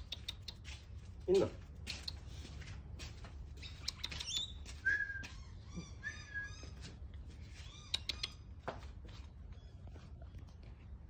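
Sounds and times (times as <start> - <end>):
parrot chirping and chattering: 0.0 - 0.8, 3.6 - 4.7, 7.5 - 8.5
bird whistled notes: 4.0 - 6.8.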